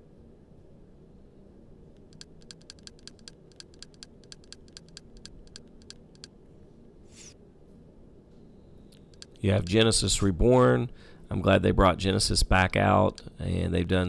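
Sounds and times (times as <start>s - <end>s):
rapid light clicks: 2.0s - 6.3s, 8.9s - 9.4s.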